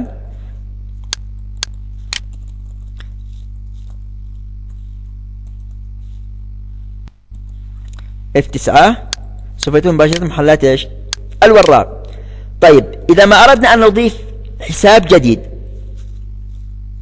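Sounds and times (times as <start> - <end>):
low hum: 0.0 - 17.0
keyboard typing: 1.0 - 3.1, 5.4 - 5.8.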